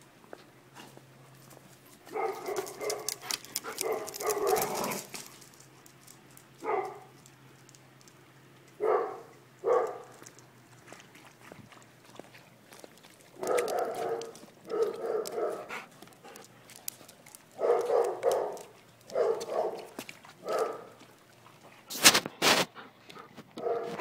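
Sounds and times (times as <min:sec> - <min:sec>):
dog barking: 0:02.1 - 0:03.2, 0:03.8 - 0:05.0, 0:06.6 - 0:07.1, 0:08.8 - 0:10.1, 0:13.4 - 0:15.7, 0:17.6 - 0:21.0, 0:23.6 - 0:24.0.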